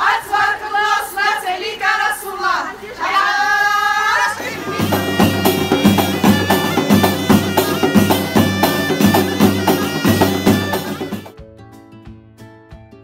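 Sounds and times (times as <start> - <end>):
reed shawm melody: 4.2 - 11.3
jingling frame drums: 4.4 - 11.4.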